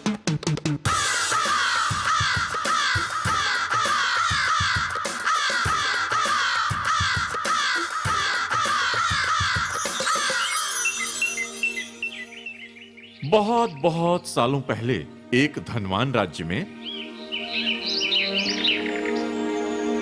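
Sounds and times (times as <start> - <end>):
crows cawing: 0.9 - 10.5.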